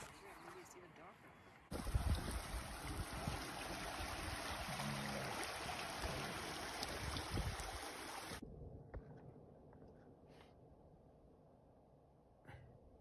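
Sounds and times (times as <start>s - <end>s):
wind rumble on microphone: 1.7s - 4.5s, 6.9s - 7.8s
stream running over rocks: 1.7s - 8.4s.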